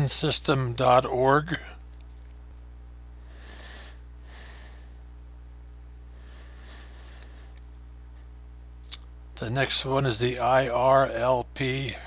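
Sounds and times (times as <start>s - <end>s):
steady low hum: 0.0s - 12.0s
soft breaths: 3.2s - 5.1s, 6.0s - 8.4s.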